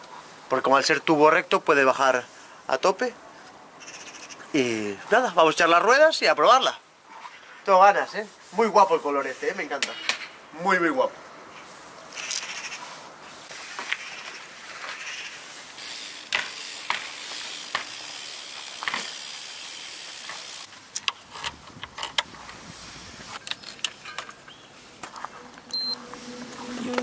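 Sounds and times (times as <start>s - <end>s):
bike parts clicking and ratcheting: 15.8s - 22.3s.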